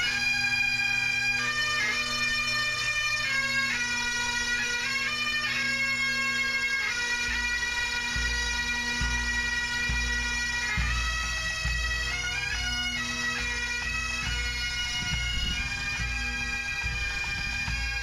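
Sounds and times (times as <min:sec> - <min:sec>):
bagpipes playing melody: 0:00.0 - 0:18.0
bass drum beating: 0:14.3 - 0:18.0.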